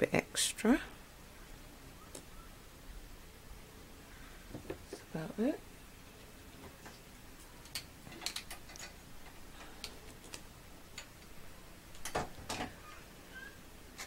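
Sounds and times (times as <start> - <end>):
safety pins clinking together: 7.6 - 11.3.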